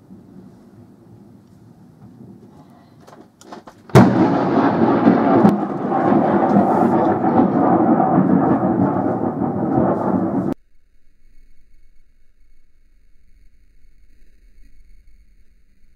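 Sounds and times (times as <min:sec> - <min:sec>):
thunder crack and rumble: 0:03.9 - 0:10.6.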